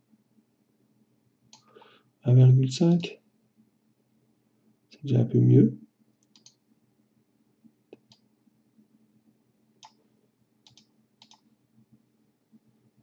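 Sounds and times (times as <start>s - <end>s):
faint steady hum: 0.0s - 13.0s
computer mouse clicks: 6.2s - 6.6s, 7.9s - 8.3s, 9.8s - 10.0s, 10.6s - 11.5s.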